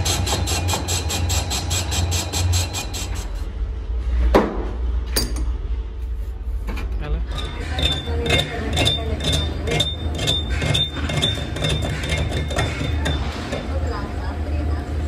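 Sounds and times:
lathe cutting tool chatter: 0.0s - 3.4s.

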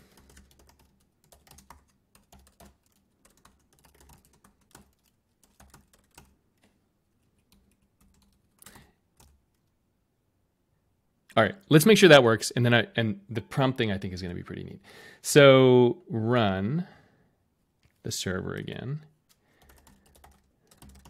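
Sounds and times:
faint keyboard typing: 0.0s - 9.8s, 17.8s - 21.0s.

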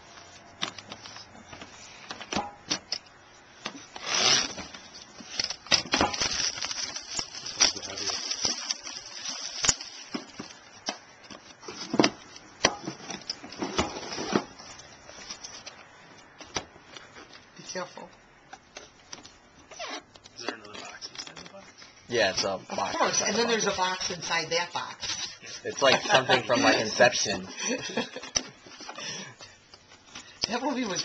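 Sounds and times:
plastic wrap crinkling: 4.0s - 12.4s.

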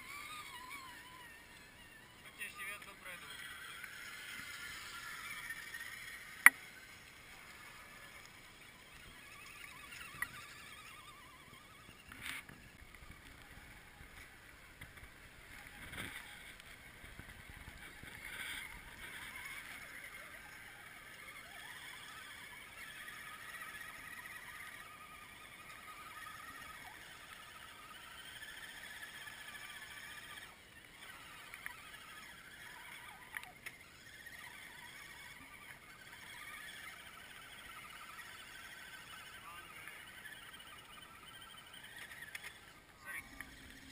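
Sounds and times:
electric motors whining: 0.0s - 43.9s.

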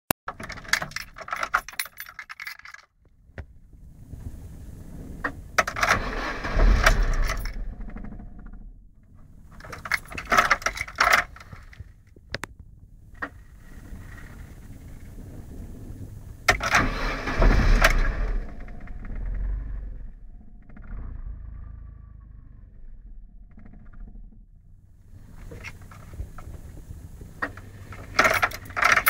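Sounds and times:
car engine rumble: 0.3s - 29.0s
car keys jangling: 0.4s - 2.9s, 9.6s - 11.8s, 27.4s - 29.0s.

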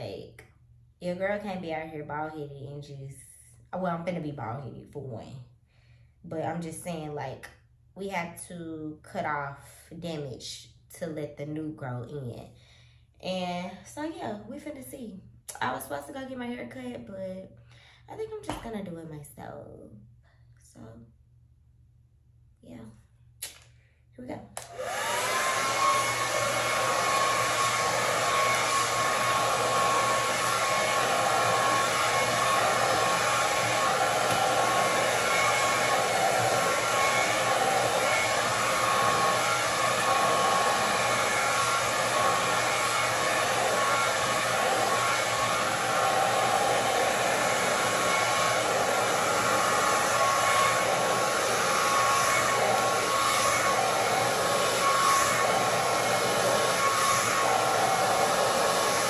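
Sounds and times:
hair dryer blowing: 24.6s - 59.0s.

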